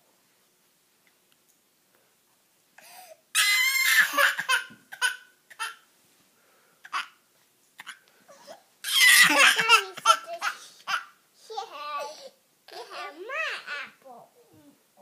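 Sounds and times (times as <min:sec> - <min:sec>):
baby crying: 0:03.3 - 0:05.8, 0:07.8 - 0:11.1.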